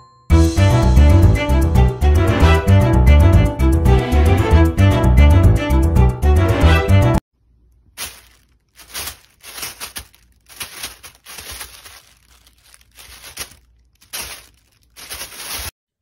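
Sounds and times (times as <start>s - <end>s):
plastic bag crinkling: 7.6s - 15.8s.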